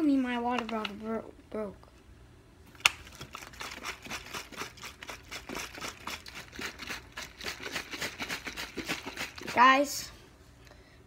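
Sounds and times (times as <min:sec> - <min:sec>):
plastic bottle crinkling: 0:02.8 - 0:09.6.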